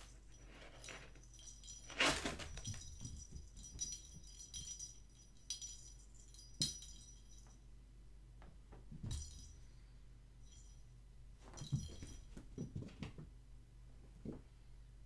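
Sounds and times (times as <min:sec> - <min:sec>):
toy ball bell jingling: 0:00.0 - 0:07.6, 0:09.1 - 0:09.6, 0:11.6 - 0:12.3.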